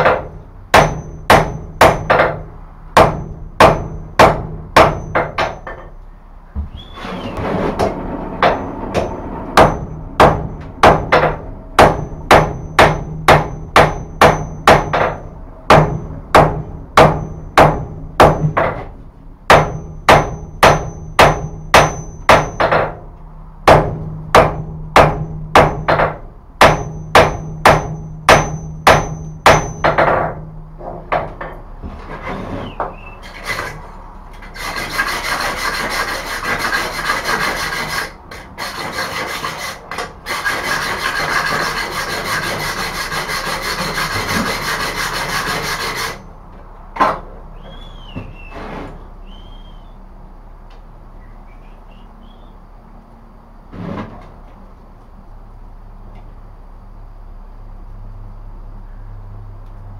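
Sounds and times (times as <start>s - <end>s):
hammer ringing on anvil: 0.0s - 2.3s, 9.0s - 18.4s, 19.5s - 22.9s, 26.6s - 30.1s.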